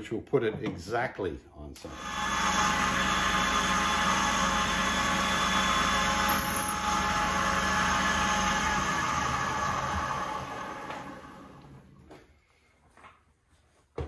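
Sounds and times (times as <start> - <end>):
metal lathe cutting: 1.9 - 11.6.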